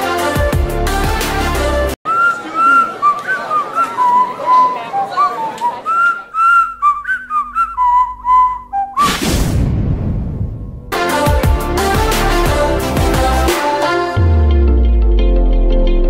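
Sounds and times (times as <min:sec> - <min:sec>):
person whistling a tune: 0:02.1 - 0:09.1.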